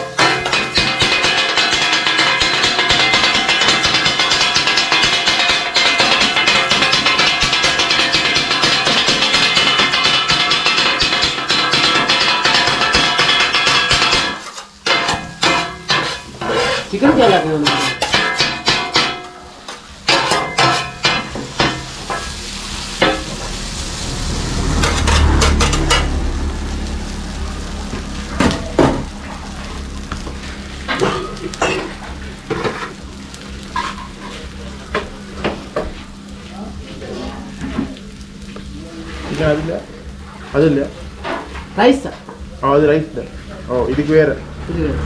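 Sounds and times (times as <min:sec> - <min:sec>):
metal blades clattering on griddle: 0:00.0 - 0:36.0
food sizzling: 0:00.0 - 0:45.0.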